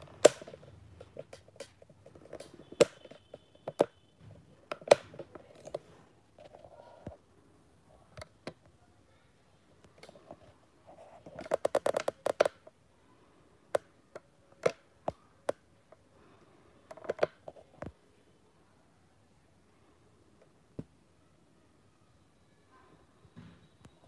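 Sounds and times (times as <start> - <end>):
sharp clicks and taps: 0.0 - 4.0.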